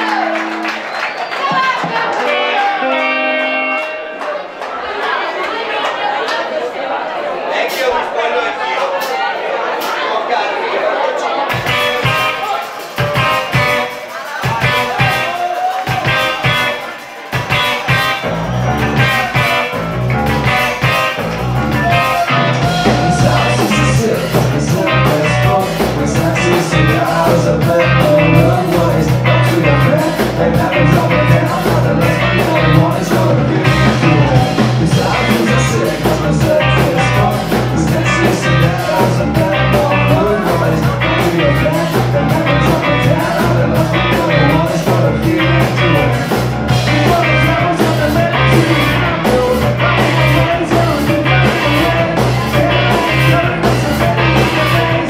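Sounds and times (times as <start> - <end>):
bass guitar: 0.0 - 1.0, 1.8 - 4.4, 11.5 - 55.0
electric guitar: 0.0 - 4.7, 11.5 - 55.0
drums with steady beat: 11.5 - 55.0
person singing: 20.4 - 55.0.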